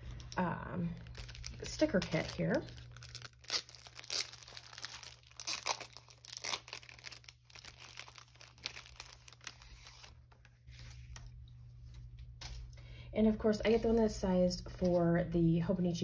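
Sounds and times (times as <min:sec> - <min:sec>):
plastic sleeve crinkling: 0:00.0 - 0:12.7.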